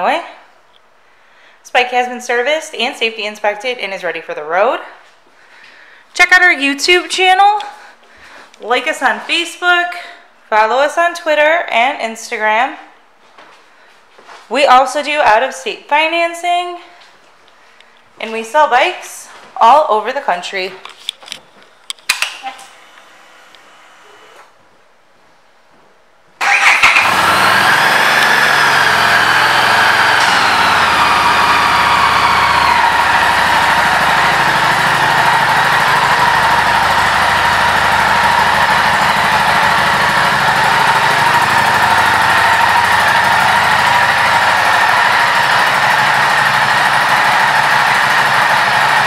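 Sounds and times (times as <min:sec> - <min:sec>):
motorcycle engine idling: 0:26.4 - 0:49.0.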